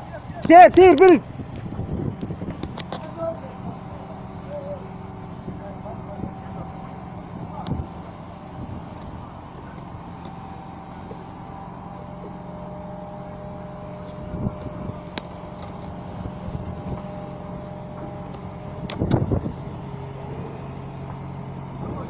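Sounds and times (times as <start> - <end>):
diesel engine running under load: 0.0 - 22.0
faint whine: 0.0 - 22.0.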